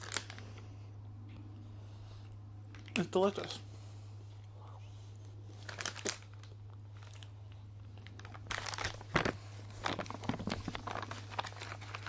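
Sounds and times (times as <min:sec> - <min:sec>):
plastic wrapper crinkling: 0:00.0 - 0:00.5, 0:05.5 - 0:12.0
steady low hum: 0:00.0 - 0:12.0.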